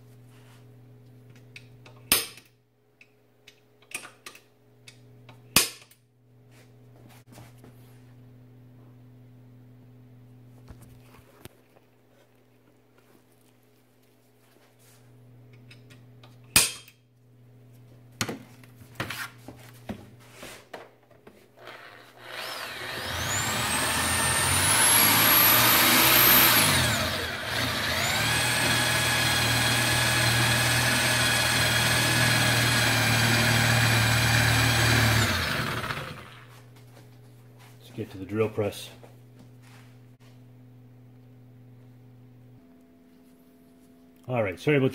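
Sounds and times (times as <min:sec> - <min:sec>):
electric drill boring into steel: 0:21.6 - 0:36.4.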